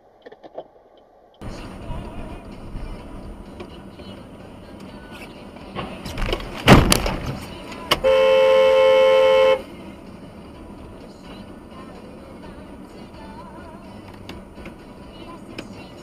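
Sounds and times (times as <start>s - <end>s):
vehicle collision crunching: 5.7s - 8.0s
car horn honking: 7.9s - 9.8s.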